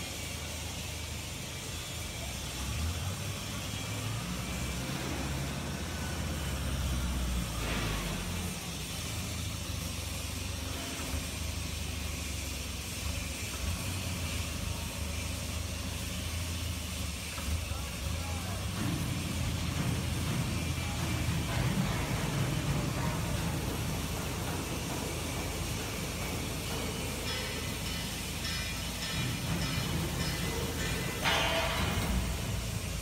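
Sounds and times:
forklift engine running: 0.0s - 33.0s.

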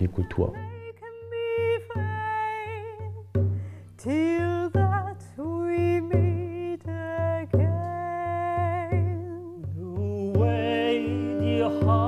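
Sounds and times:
soft frame drum beats: 0.1s - 12.0s
woman singing with vibrato: 0.5s - 3.3s, 3.9s - 12.0s
bowed string drone: 10.4s - 12.0s.

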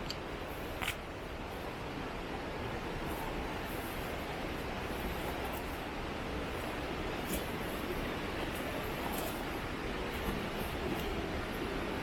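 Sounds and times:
low rushing noise: 0.0s - 12.0s.

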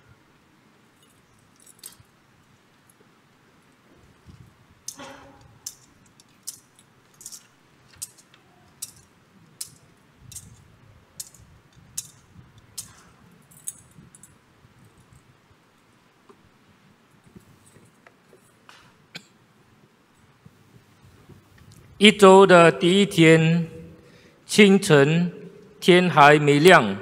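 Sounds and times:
thurible chains clinking: 12.8s - 14.4s.

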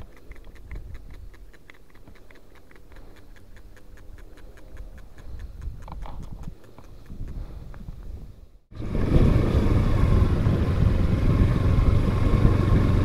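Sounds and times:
rapid ticking: 0.0s - 7.8s
low rumble: 7.4s - 13.0s.

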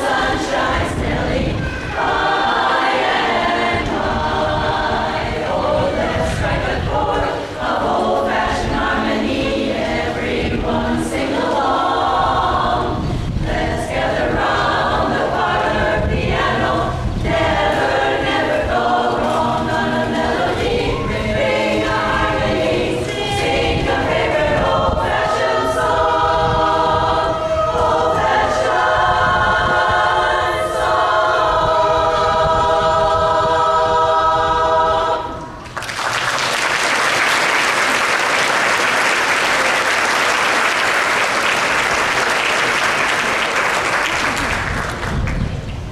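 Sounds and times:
women's chorus singing a cappella: 0.0s - 35.6s
audience applause: 35.6s - 45.6s.

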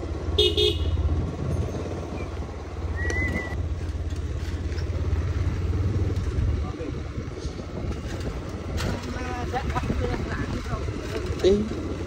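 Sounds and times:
wind buffeting microphone: 5.7s - 12.0s.

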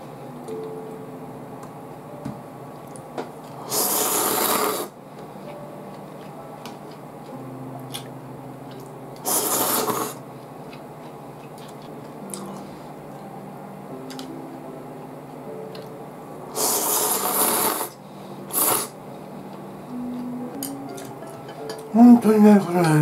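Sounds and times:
low steady hum: 0.0s - 23.0s
person slurping noodles: 3.6s - 4.9s, 9.2s - 10.2s, 16.6s - 19.0s.

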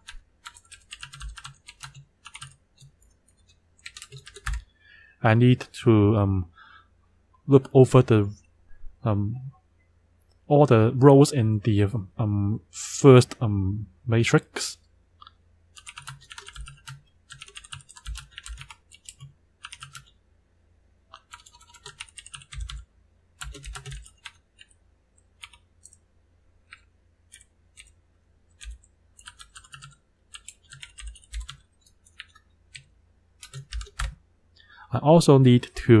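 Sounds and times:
typing on a keyboard: 0.0s - 4.6s, 15.8s - 20.1s, 21.1s - 22.8s, 23.4s - 24.8s, 25.4s - 26.0s, 28.6s - 34.2s.

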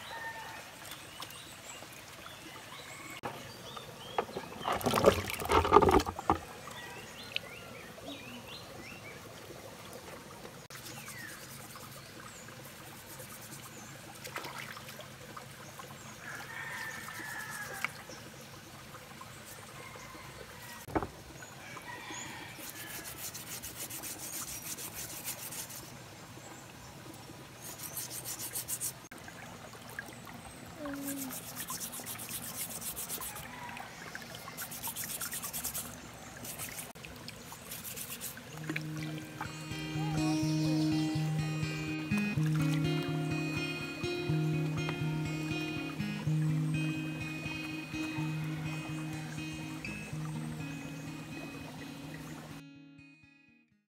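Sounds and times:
water trickling over rocks: 0.0s - 52.6s
splash into stream: 4.0s - 6.6s, 14.1s - 15.4s
hands rubbing in water: 10.7s - 13.8s, 16.9s - 18.0s, 22.6s - 26.0s, 27.6s - 29.1s, 31.0s - 33.6s, 34.5s - 43.0s
birds calling: 37.4s - 52.6s.

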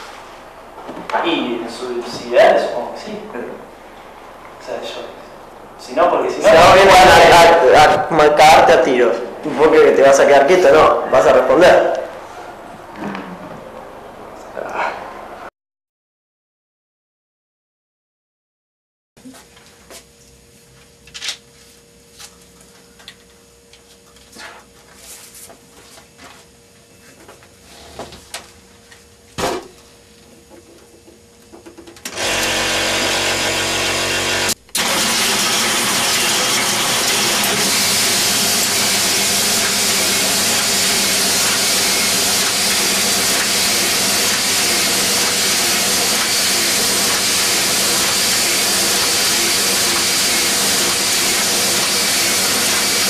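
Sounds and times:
printing press running: 32.0s - 53.0s.

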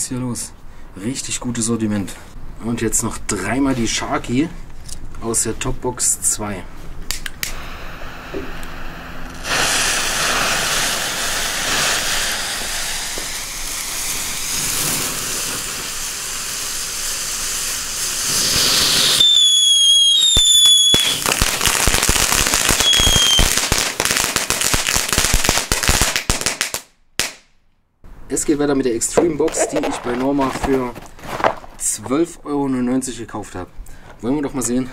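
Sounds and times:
firework crackling: 7.1s - 27.4s, 29.2s - 31.9s
firework whistles: 7.5s - 25.4s
fountain fireworks hissing: 7.5s - 25.8s, 29.4s - 30.6s.

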